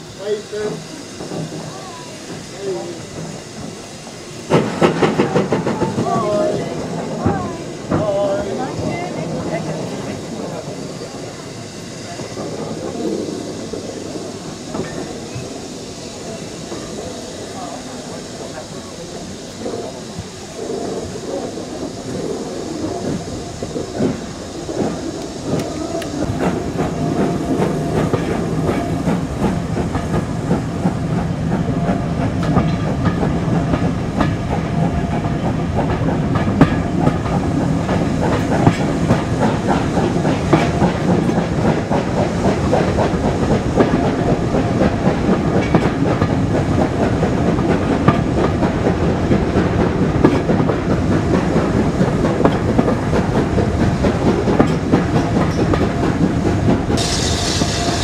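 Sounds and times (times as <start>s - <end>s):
train running rumble: 0.0s - 58.0s
train wheels clattering over rail joints: 2.4s - 11.2s, 23.0s - 58.0s.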